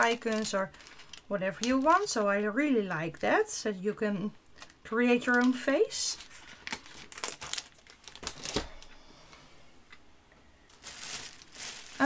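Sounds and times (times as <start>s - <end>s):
plastic packet crinkling: 0.0s - 2.4s, 4.4s - 8.9s, 10.7s - 12.0s.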